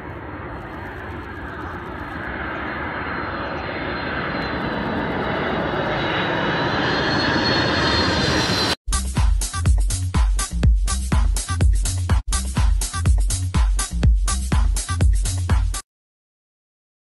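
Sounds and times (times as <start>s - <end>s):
high engine whine: 0.0s - 8.8s
jet airliner passing overhead: 0.0s - 8.8s.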